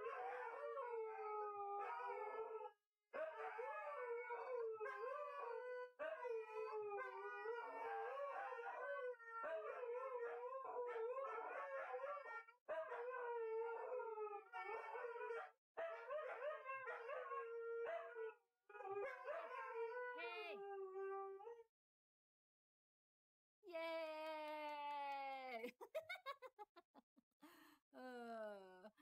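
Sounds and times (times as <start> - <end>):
dogs howling: 0.0 - 21.6.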